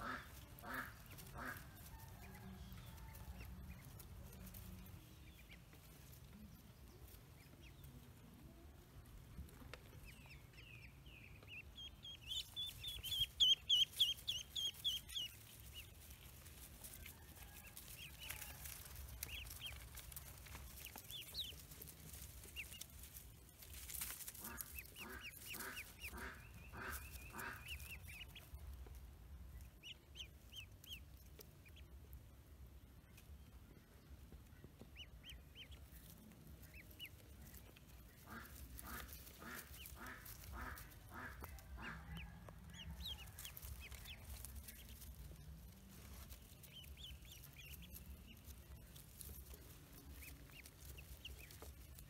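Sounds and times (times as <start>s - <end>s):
duck quacking: 0.0s - 1.8s, 24.4s - 28.2s, 38.1s - 42.4s
ducklings peeping: 0.0s - 52.0s.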